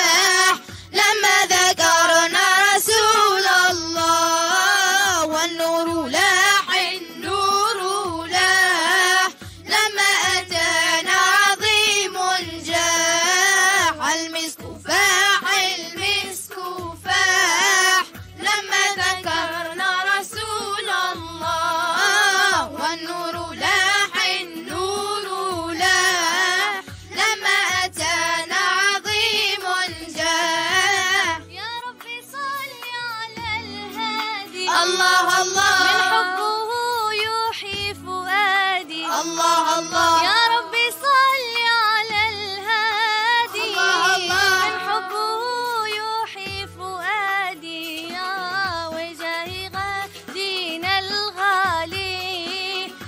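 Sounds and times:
children singing: 0:00.0 - 0:31.4, 0:33.9 - 0:37.6, 0:38.9 - 0:42.4, 0:43.2 - 0:46.1.

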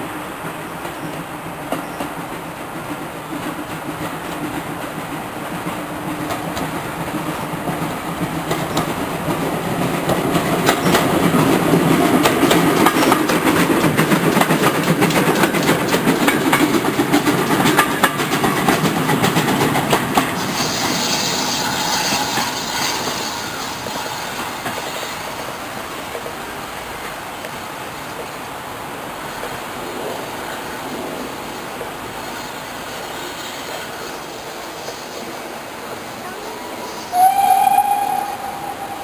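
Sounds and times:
steam train passing: 0:00.0 - 0:39.0
train wheels clicking over rail joints: 0:00.4 - 0:28.4.

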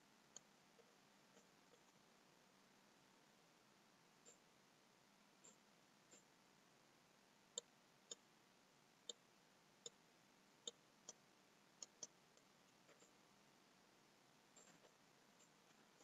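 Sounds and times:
computer mouse clicks: 0:11.8 - 0:13.2.

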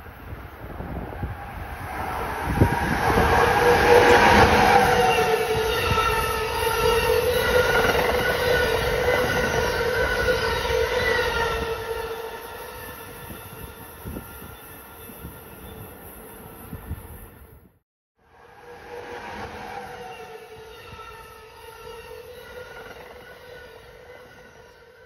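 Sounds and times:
train wheels rumbling on rail: 0:00.0 - 0:17.6.

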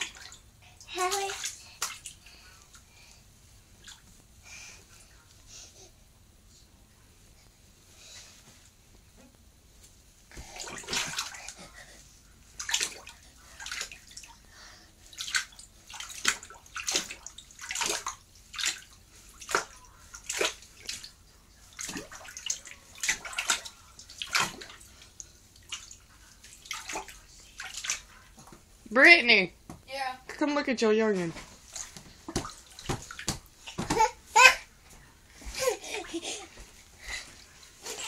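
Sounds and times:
bathwater splashing: 0:00.0 - 0:03.1, 0:03.7 - 0:04.7, 0:10.3 - 0:28.7, 0:31.5 - 0:34.7.

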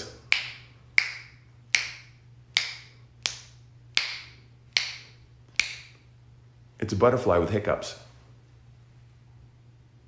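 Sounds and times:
fingers snapping: 0:00.3 - 0:06.0.

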